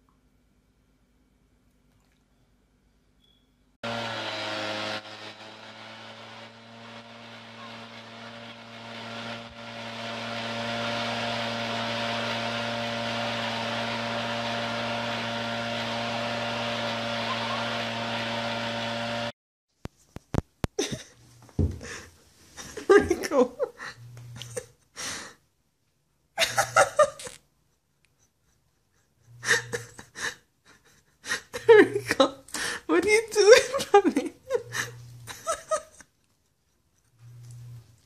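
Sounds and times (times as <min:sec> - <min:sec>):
leaf blower running: 0:03.8 - 0:19.3, 0:34.6 - 0:35.7.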